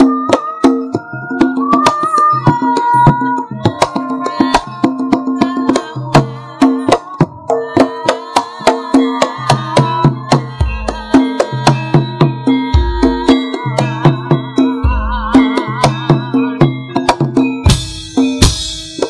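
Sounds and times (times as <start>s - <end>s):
woman singing: 0.0s - 17.6s
ringing metallophone tones: 0.0s - 19.0s
sharp drum strokes: 17.1s - 19.0s.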